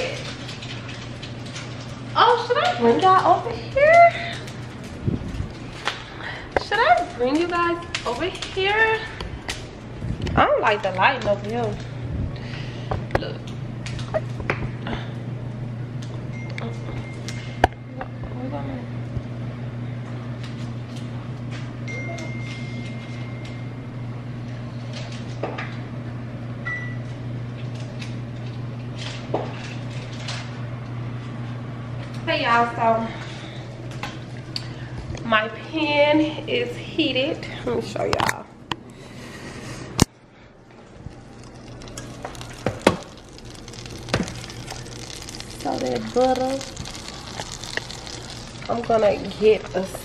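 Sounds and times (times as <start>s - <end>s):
steady low hum: 0.0s - 50.0s
butter sizzling in a skillet: 41.8s - 50.0s.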